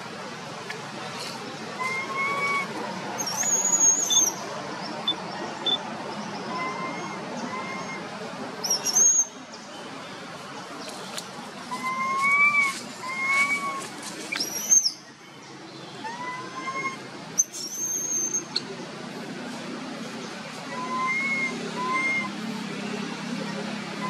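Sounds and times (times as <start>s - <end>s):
baby monkey coo calls: 1.8s - 4.3s, 16.0s - 18.6s
baby monkey high squeals: 1.8s - 4.3s, 11.8s - 14.9s, 16.1s - 18.4s.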